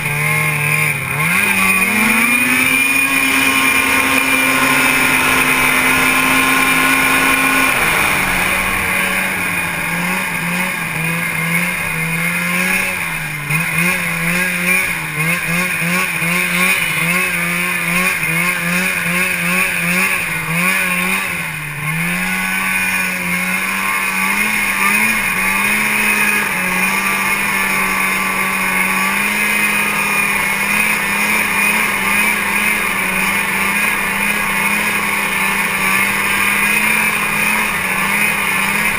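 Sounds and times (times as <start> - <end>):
constant high whine: 0.0 - 38.9
snowmobile engine running: 0.0 - 38.9.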